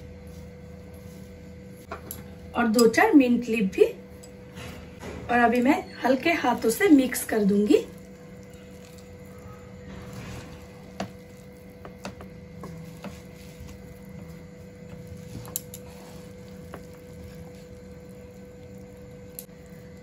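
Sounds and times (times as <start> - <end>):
faint steady hum: 0.0 - 20.0
spatula mixing rice: 7.2 - 20.0.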